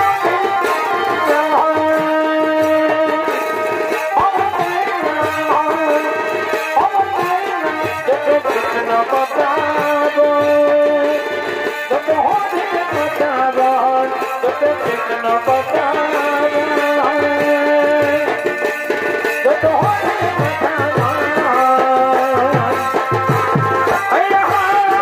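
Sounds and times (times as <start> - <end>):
steady drumming: 0.0 - 25.0.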